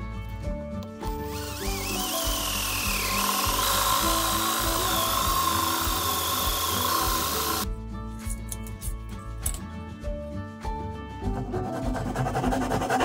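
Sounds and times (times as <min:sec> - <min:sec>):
background music: 0:00.0 - 0:13.0
electric drill boring into wood: 0:01.1 - 0:07.6.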